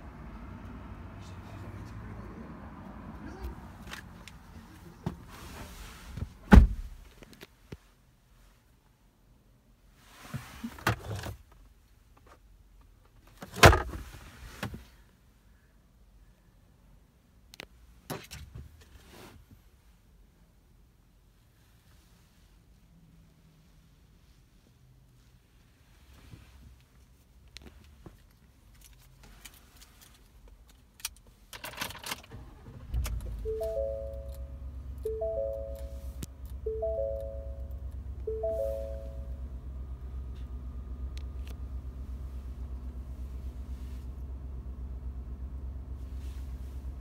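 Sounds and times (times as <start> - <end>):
truck engine starting and idling: 31.8 - 47.0
three-tone dashboard chime: 33.4 - 39.5.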